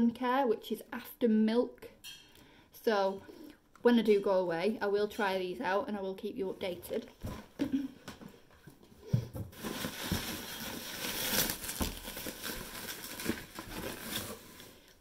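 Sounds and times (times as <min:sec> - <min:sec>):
bubble wrap crinkling: 0:09.6 - 0:15.0.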